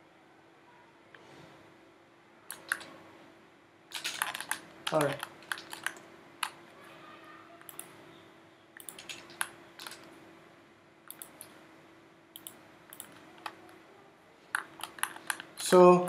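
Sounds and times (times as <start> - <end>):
faint steady hum: 0.0 - 16.0
mouse and keyboard clicks: 2.5 - 2.9, 4.0 - 6.6, 7.6 - 8.0, 8.8 - 10.1, 11.1 - 11.6, 12.4 - 13.8, 14.5 - 15.8.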